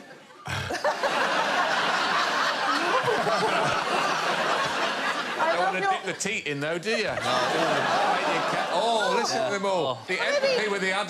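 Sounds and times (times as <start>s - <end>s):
audience laughing loudly: 0.0s - 6.0s, 7.0s - 9.6s
panellists laughing: 0.0s - 6.1s, 6.8s - 11.0s.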